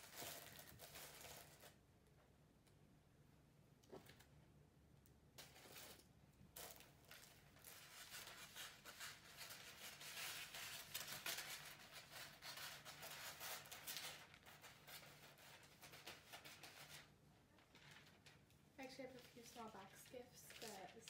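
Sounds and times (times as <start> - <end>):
wrapping paper crinkling: 0.0 - 1.8, 5.4 - 21.0.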